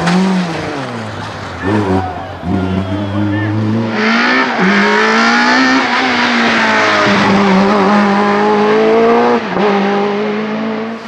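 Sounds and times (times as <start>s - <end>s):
race car engine at high revs: 0.0s - 11.0s.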